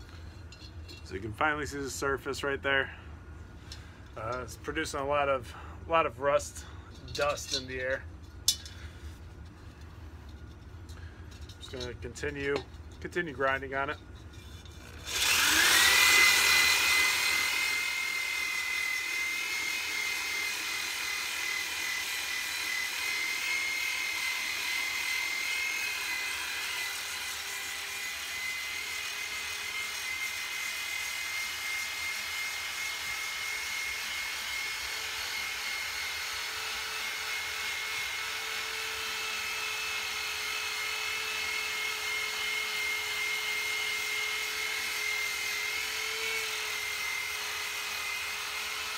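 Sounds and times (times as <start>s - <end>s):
abrasive disc grinding iron: 3.6s - 48.9s
electric drill motor whine: 14.8s - 48.9s.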